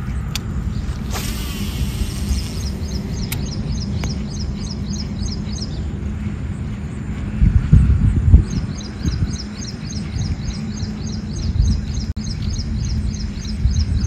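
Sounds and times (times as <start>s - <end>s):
bird chirping: 0.0s - 6.8s, 8.4s - 14.0s
steady low rumble: 0.0s - 14.0s
hissing rush: 0.6s - 3.7s
sharp clicks: 1.1s - 4.2s.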